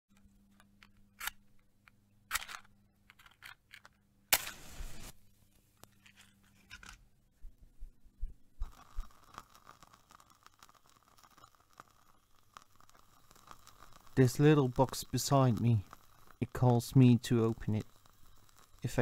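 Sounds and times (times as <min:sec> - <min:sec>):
match flare hiss: 0:04.3 - 0:05.2, 0:08.6 - 0:19.0
match scraping on matchbox: 0:04.4 - 0:05.1, 0:08.6 - 0:19.0
small clicks and rustles: 0:08.6 - 0:19.0.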